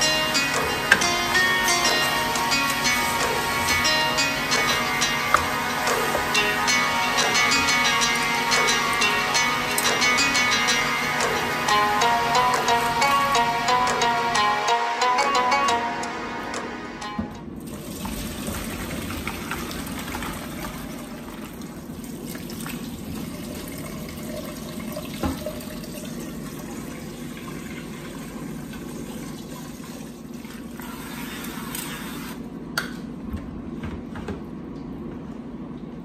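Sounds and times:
water pouring into a steel sink: 17.7 - 32.1.

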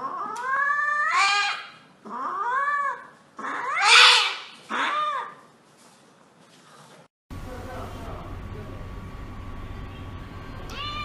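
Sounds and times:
cat yowling: 0.0 - 5.4, 10.7 - 11.0.

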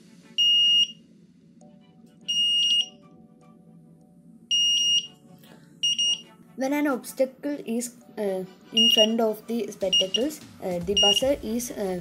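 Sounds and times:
short high-pitched beeps: 0.4 - 1.0, 2.3 - 3.0, 4.5 - 5.1, 5.8 - 6.2, 8.8 - 9.1, 11.0 - 11.3.

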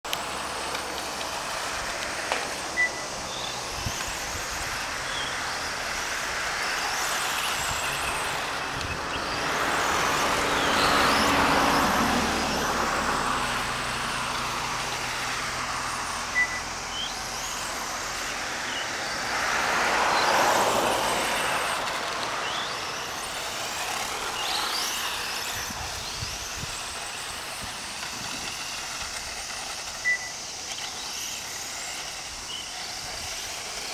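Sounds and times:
rc car electric motor whining: 0.1 - 33.9
short high beeps: 2.8 - 3.1, 16.3 - 16.6.

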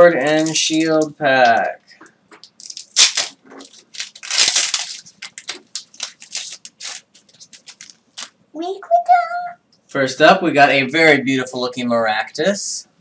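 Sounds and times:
foil wrapper crinkling: 0.2 - 1.8, 2.4 - 8.3.

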